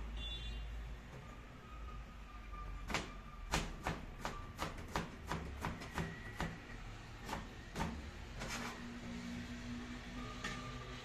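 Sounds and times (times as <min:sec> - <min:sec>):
knife chopping on plastic board: 0:02.9 - 0:08.6.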